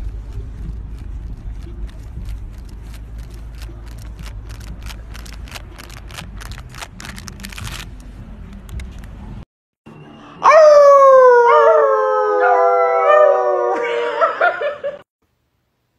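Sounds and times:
low outdoor rumble: 0.0s - 10.2s.

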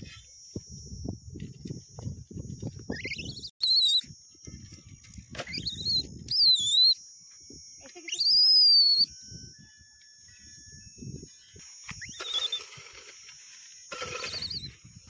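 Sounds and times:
high wavering whistles: 0.0s - 15.0s
hoe scraping dry soil: 12.2s - 14.8s.

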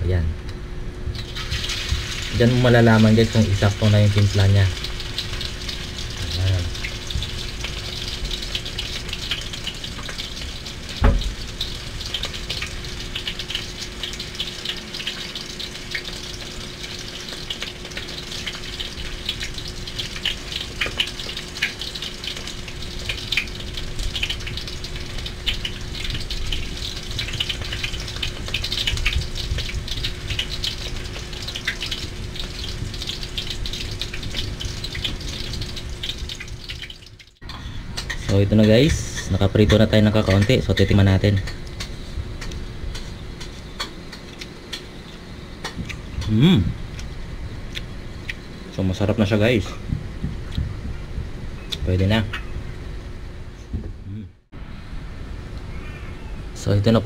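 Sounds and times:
faint steady hum: 0.0s - 57.0s
meat sizzling in oil: 1.1s - 37.4s.

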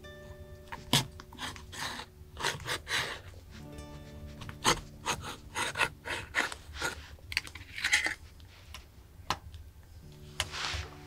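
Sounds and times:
knife scraping tin can lid: 0.8s - 3.3s, 4.5s - 8.2s.

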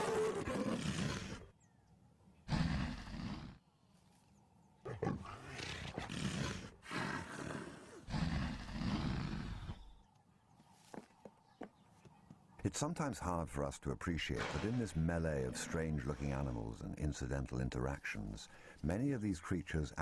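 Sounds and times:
leopard snarling and growling: 0.0s - 1.5s, 2.4s - 3.7s, 4.8s - 10.0s.

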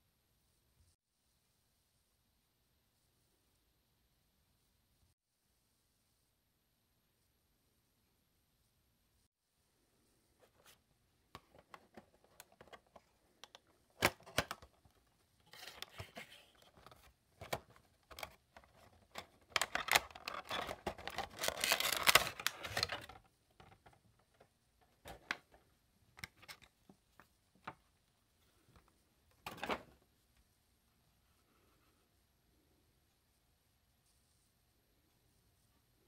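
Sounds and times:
cardboard and plastic rustling: 11.4s - 25.6s.

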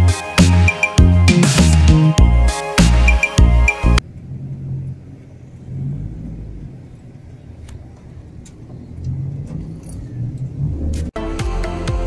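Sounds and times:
vehicle engines and road noise: 2.9s - 11.2s.

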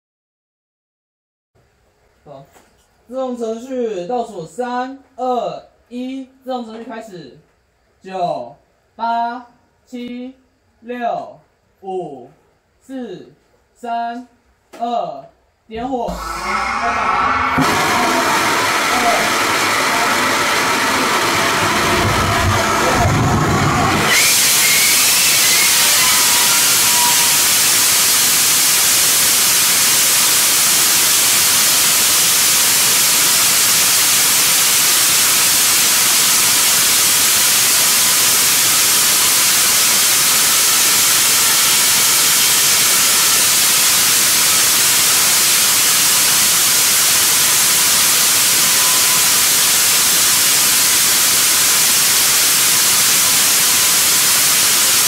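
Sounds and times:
rocket motor hissing: 16.1s - 55.0s.

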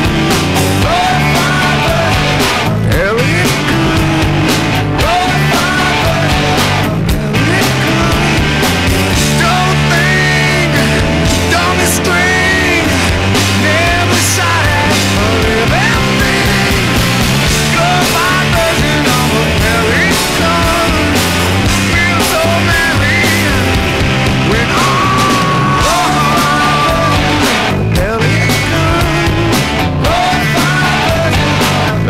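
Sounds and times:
rock music: 0.0s - 32.0s.

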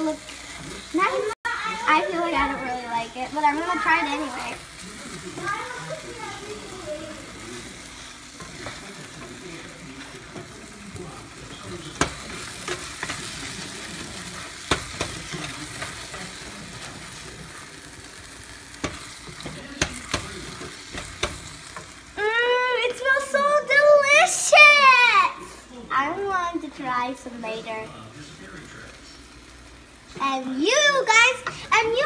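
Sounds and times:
sauce sizzling in a pan: 0.0s - 32.0s
wooden spoon knocking on pan: 11.9s - 13.2s, 14.7s - 15.9s, 18.8s - 21.5s.

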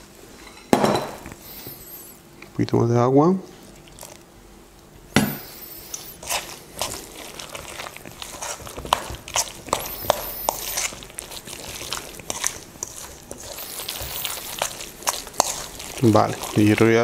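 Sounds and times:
wet crunchy batter mixing: 1.3s - 17.0s
spoon scraping metal bowl: 5.3s - 17.0s.

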